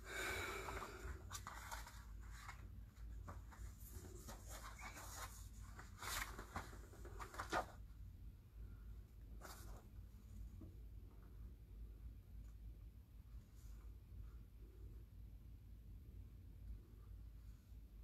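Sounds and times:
paper rustling and clicking: 1.3 - 7.8.

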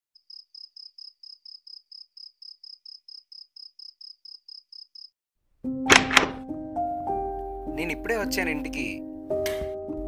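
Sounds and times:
cricket chirping: 0.2 - 5.2.

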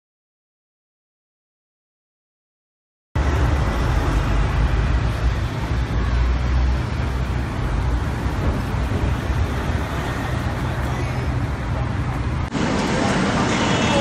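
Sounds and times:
city street traffic rumble: 3.2 - 14.0.

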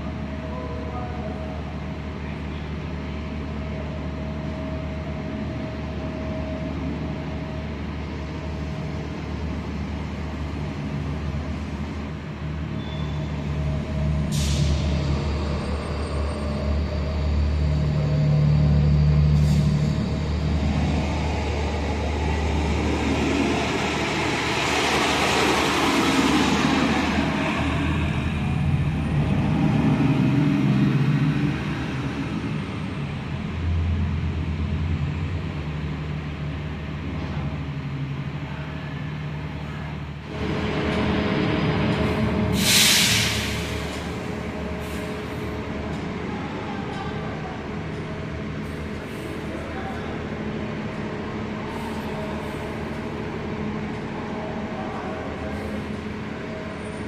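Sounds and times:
bus driving past: 0.0 - 57.0
bus engines humming: 0.0 - 57.0
short air hisses: 14.3 - 14.9, 42.5 - 43.9.

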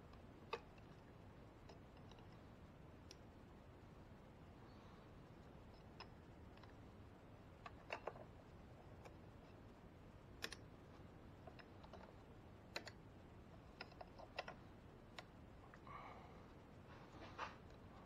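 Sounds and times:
light clicks and taps: 10.4 - 15.9.

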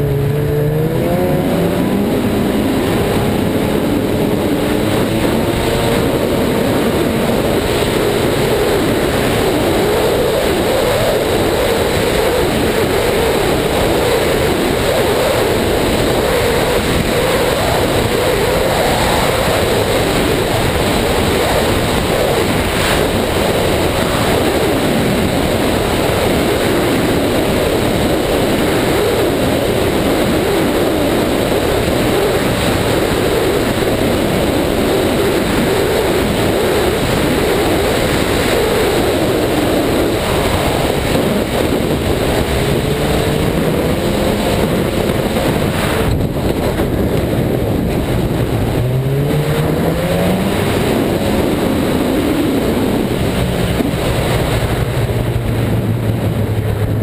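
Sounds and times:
snowmobile engine drone: 0.0 - 57.0
wind rushing over camera: 0.0 - 57.0.

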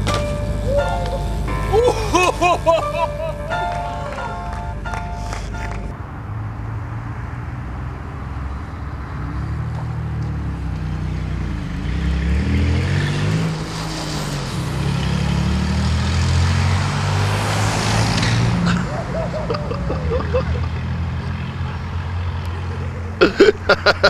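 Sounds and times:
car and truck engines passing: 0.0 - 24.0.

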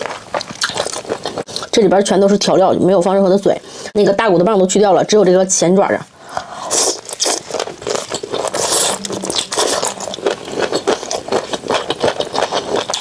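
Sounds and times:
wet sucking and chewing: 6.2 - 13.0.

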